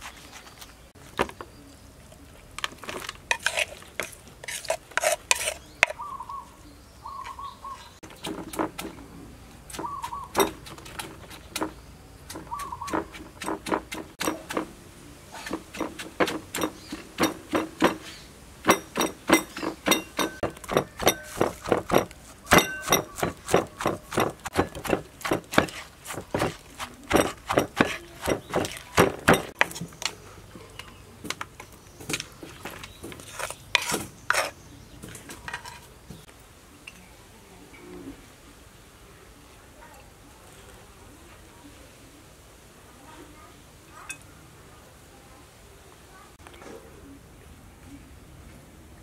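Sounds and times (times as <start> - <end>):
pestle pounding in a mortar: 8.1 - 9.0, 9.7 - 11.7, 12.3 - 14.7, 15.4 - 29.7.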